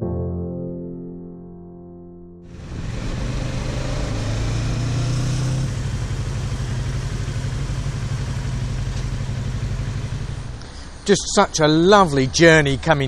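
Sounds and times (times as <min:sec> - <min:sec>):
motorcycle engine running: 0:02.5 - 0:10.6
wind and road noise: 0:02.5 - 0:13.0.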